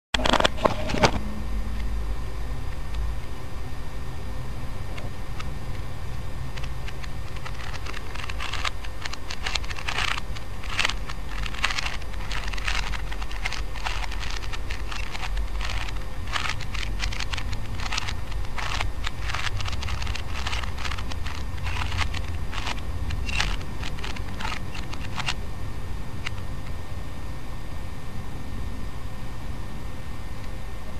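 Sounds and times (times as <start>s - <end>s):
steady low hum: 0.2s - 30.9s
plastic puzzle cube clicking: 6.6s - 25.4s.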